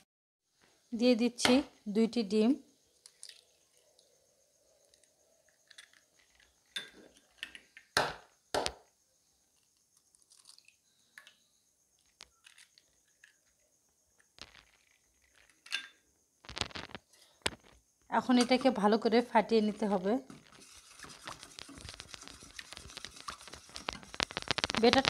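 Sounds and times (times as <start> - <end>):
eggs cracking: 3.0 - 4.1, 10.0 - 11.4, 12.0 - 17.8, 20.3 - 25.0
eggshells crackling: 14.2 - 15.6, 16.4 - 17.8, 20.3 - 25.0.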